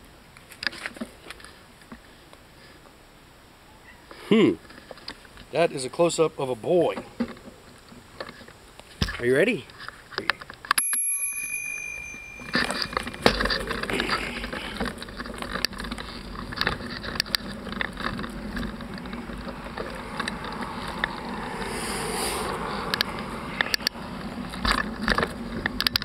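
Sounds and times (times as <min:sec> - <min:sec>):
bicycle rolling with clicks: 0:09.7 - 0:21.7, 0:22.5 - 0:26.0
bicycle bell ringing: 0:10.8 - 0:14.5.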